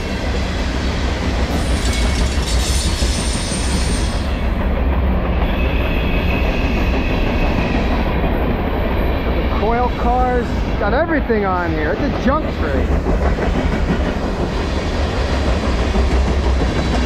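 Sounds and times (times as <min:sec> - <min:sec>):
train wheels rumbling on rail: 0:00.0 - 0:17.0
high wheel squeal: 0:05.3 - 0:08.3.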